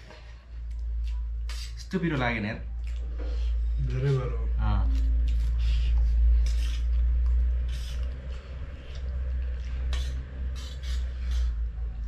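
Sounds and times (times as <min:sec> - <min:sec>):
steady low hum: 0:00.0 - 0:12.0
slurping and chewing: 0:02.8 - 0:11.6.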